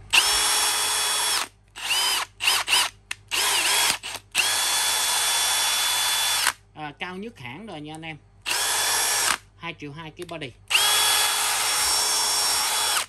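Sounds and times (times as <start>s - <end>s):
drill motor whine: 0.1s - 6.5s, 8.5s - 9.4s, 10.7s - 13.0s.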